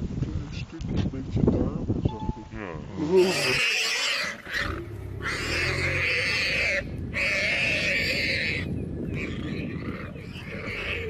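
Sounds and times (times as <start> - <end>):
warthog squealing: 3.1 - 11.0
low rumble: 4.4 - 10.7.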